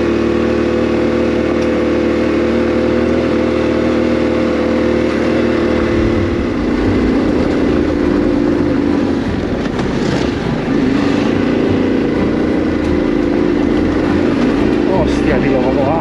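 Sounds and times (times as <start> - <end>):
motorcycle engine climbing: 4.6 - 16.0
hissing rush: 5.2 - 10.1.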